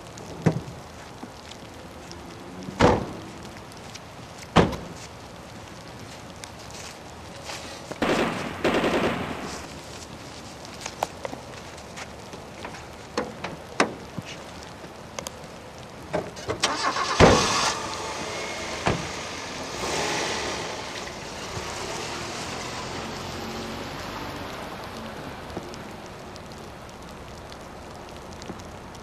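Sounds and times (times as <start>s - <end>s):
tyres hissing on wet road: 0.0s - 29.0s
sharp bangs: 8.0s - 9.7s
car driving past: 16.7s - 25.5s.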